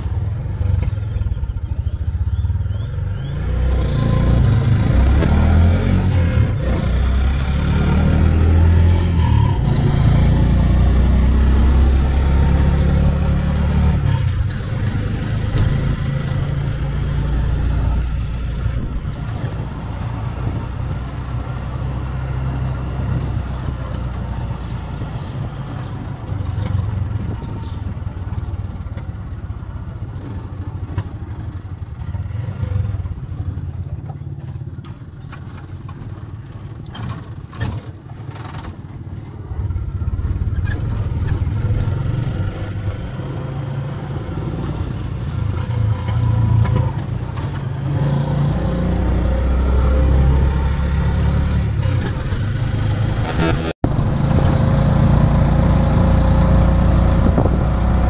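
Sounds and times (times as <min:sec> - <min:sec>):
motor tricycle engine running: 0:13.9 - 0:48.0.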